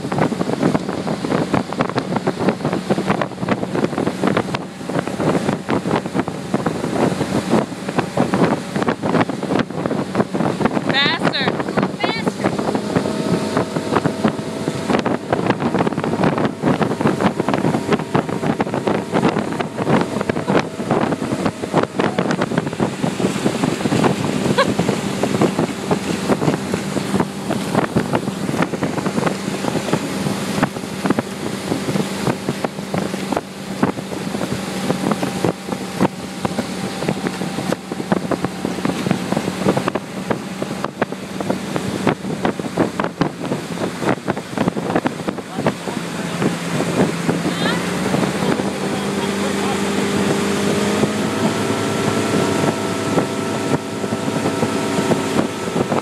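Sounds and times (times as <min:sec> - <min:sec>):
motorboat engine running: 0:00.0 - 0:56.0
water rushing: 0:00.0 - 0:56.0
wind buffeting microphone: 0:00.0 - 0:56.0.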